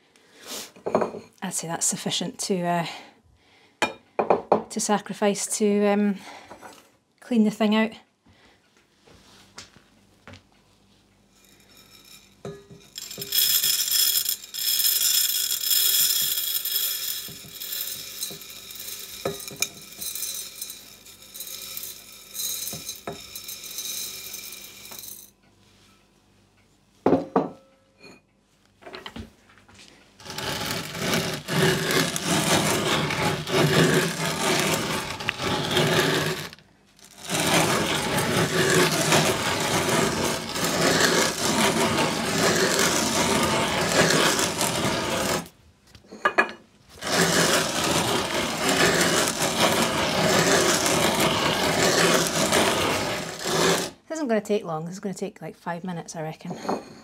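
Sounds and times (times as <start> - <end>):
grain rattling into metal hopper: 12.9 - 25.3, 30.2 - 45.5.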